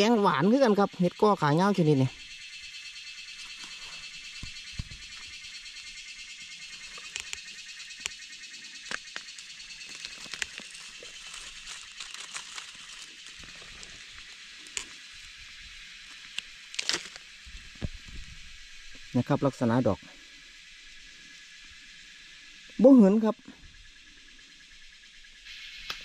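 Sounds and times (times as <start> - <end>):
forest insects droning: 0.0 - 26.0
sharp clicks: 6.9 - 8.2
dry leaf litter rustling: 8.9 - 15.4, 16.0 - 18.4.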